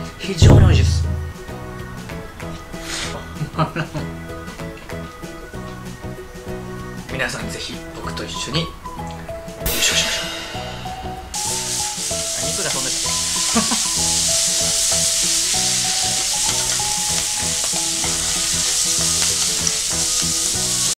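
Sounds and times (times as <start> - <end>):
soft background music: 0.0 - 20.9
noodles sizzling in frying pan: 11.3 - 21.0.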